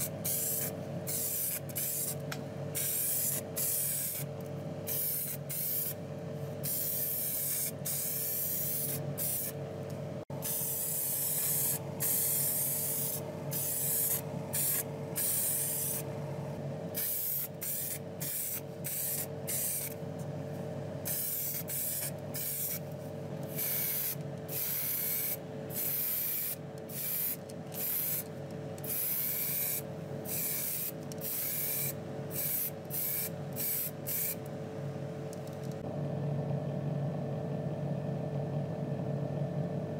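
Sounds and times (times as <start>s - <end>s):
steady low hum: 0.0s - 39.9s
aerosol spray can hissing: 17.0s - 20.0s, 23.5s - 28.2s, 28.9s - 34.4s.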